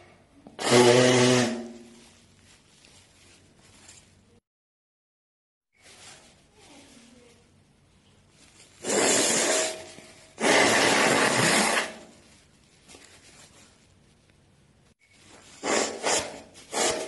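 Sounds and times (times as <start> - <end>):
person blowing nose: 0.6 - 2.0, 8.8 - 9.8, 10.4 - 12.2, 15.6 - 17.0.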